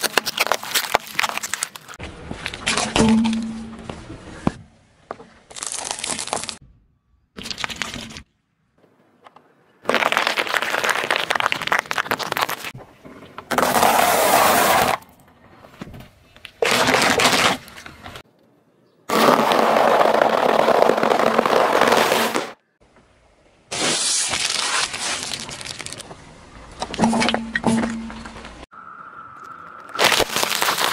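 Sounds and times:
small balls cracking: 0.0s - 2.8s, 9.8s - 12.8s, 29.9s - 30.9s
grapes squashing under tyre: 9.8s - 12.8s, 19.1s - 22.6s, 29.9s - 30.9s.

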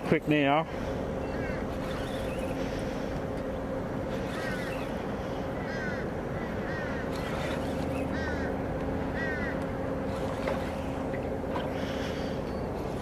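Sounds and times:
low steady hum: 0.0s - 13.0s
wind: 0.0s - 13.0s
water noise: 0.8s - 13.0s.

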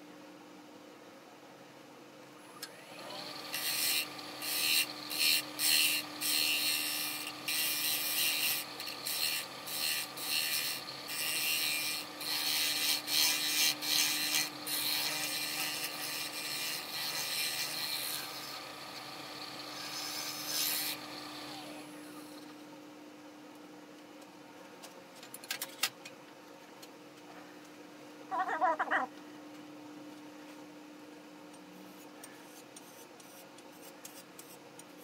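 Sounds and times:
turning tool cutting wood: 2.8s - 22.0s
lathe motor hum: 2.8s - 22.1s.

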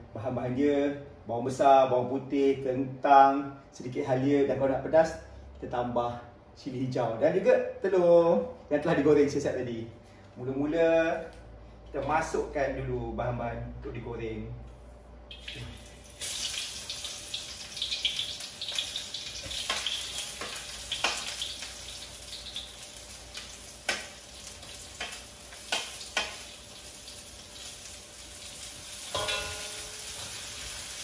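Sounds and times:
onions sizzling in hot oil: 15.3s - 31.0s.

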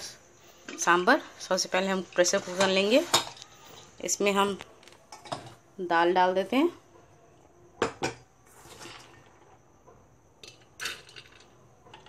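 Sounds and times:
utensils clattering: 2.0s - 4.0s
utensils knocking on metal pot: 7.8s - 8.3s.

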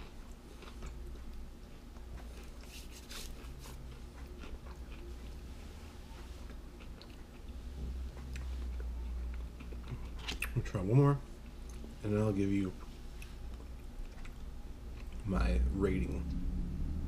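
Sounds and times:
person chewing crunchy snack: 0.0s - 5.5s, 6.5s - 10.6s.

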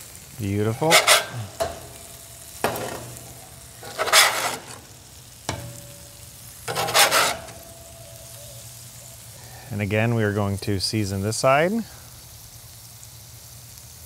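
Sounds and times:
patties sizzling on a griddle: 0.0s - 14.0s
metal spatula scraping: 0.4s - 8.4s.

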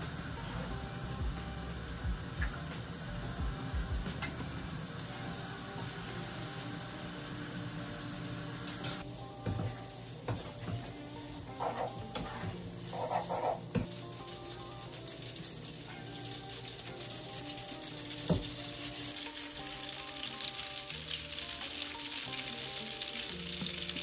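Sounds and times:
food sizzling in a frying pan: 0.0s - 24.0s.

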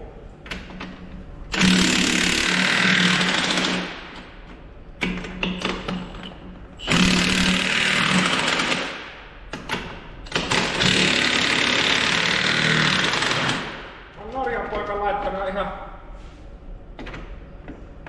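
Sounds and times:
impact wrench hammering: 6.8s - 14.0s.

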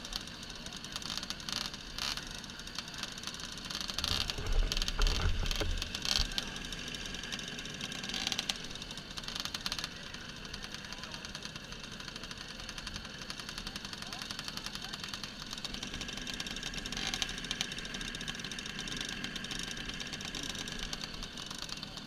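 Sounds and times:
moped engines idling: 0.0s - 22.0s.

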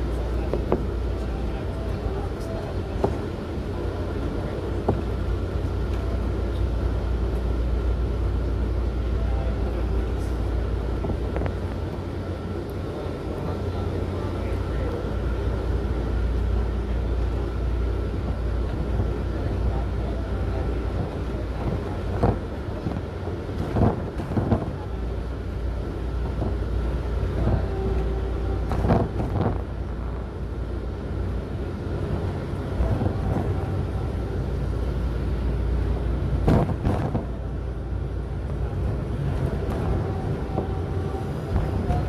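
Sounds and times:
vehicle rumble from inside: 0.0s - 42.0s.

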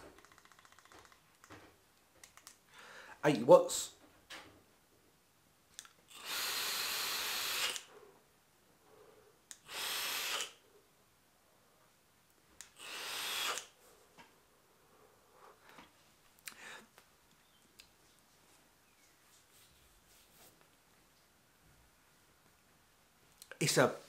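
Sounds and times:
breaths blowing out vapour: 6.1s - 7.9s.

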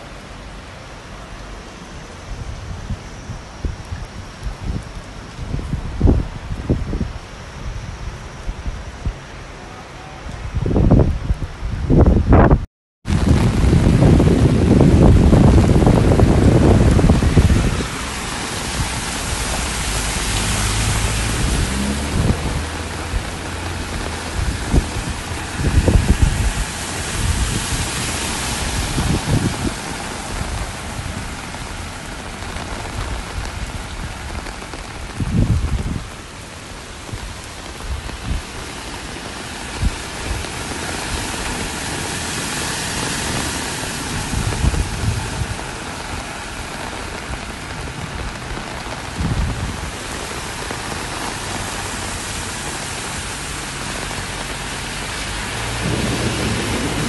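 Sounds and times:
heavy rain pouring: 0.0s - 57.0s
low rumbles: 53.1s - 57.0s.

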